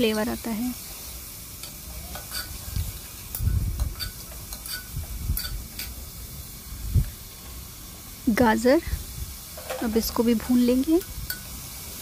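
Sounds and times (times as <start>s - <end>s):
vegetables sizzling: 0.0s - 12.0s
spoon scraping metal pot: 2.1s - 2.8s.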